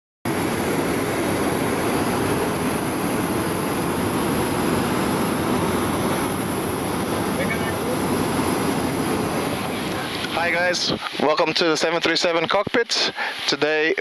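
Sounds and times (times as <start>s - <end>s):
jet aircraft rushing noise: 0.3s - 11.0s
high-pitched whine: 0.3s - 11.1s.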